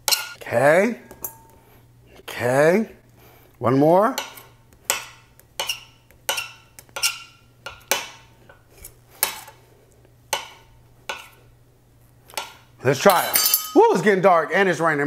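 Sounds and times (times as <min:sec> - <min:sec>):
knife blade ringing: 0:00.0 - 0:00.4, 0:01.1 - 0:01.6, 0:13.1 - 0:14.0.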